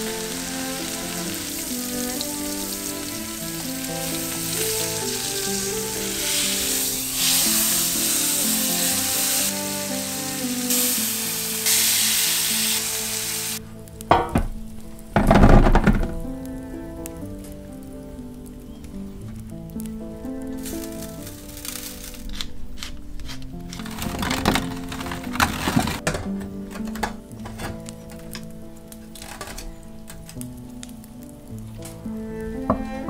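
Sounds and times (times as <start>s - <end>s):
potatoes pouring into metal tray: 0.0s - 13.6s, 20.6s - 27.8s
meat sizzling in a pan: 0.0s - 15.4s, 20.5s - 22.9s.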